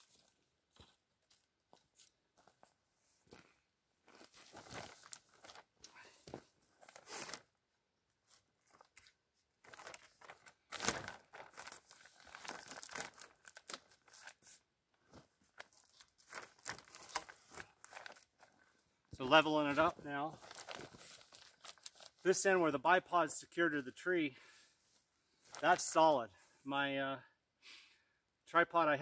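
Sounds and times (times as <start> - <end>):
plastic liners crinkling: 4.1 - 7.5, 8.3 - 22.4.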